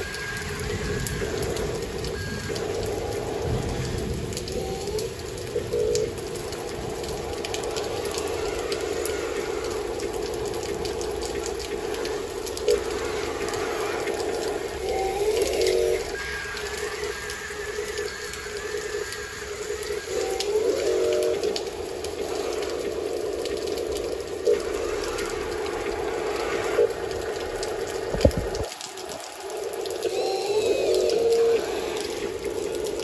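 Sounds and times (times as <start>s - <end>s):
toy electric motor and gear whine: 30.1s - 32.4s.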